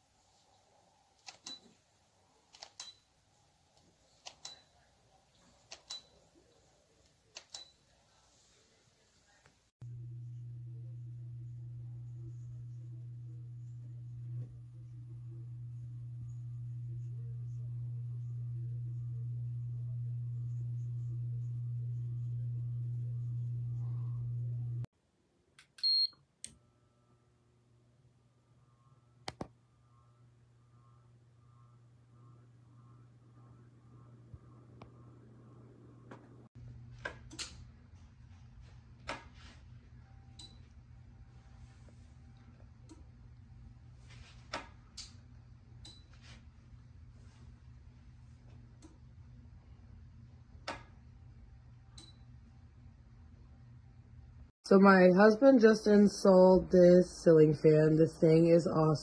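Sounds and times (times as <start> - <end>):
clicks: 3.8 - 4.7
ceiling fan running: 9.3 - 24.9
low hum: 9.8 - 24.9, 25.8 - 59.0.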